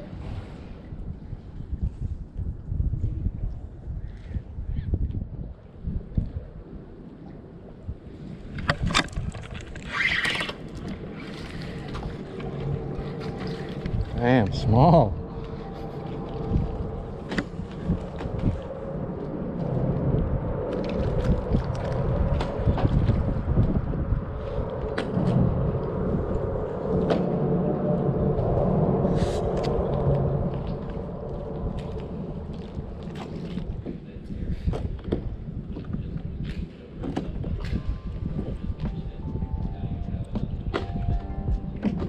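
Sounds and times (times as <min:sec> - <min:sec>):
steady low rumble: 0:00.0 - 0:09.8, 0:10.6 - 0:42.0
water lapping around kayak: 0:05.6 - 0:39.2
water rush: 0:09.3 - 0:23.6, 0:24.2 - 0:34.2.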